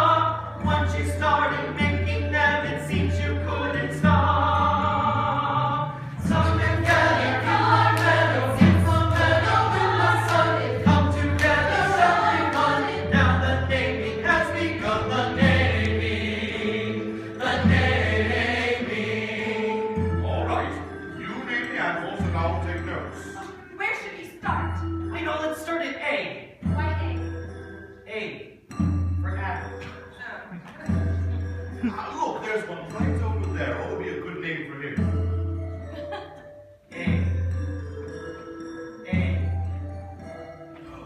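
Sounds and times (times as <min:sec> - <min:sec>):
chorus singing: 0:00.0 - 0:23.4
instrumental accompaniment: 0:00.0 - 0:41.0.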